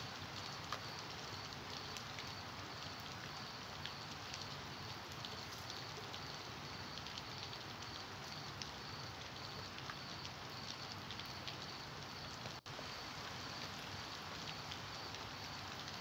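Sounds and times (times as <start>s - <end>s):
sharp drips ticking: 0.0s - 12.7s
steady rain hiss: 0.0s - 16.0s.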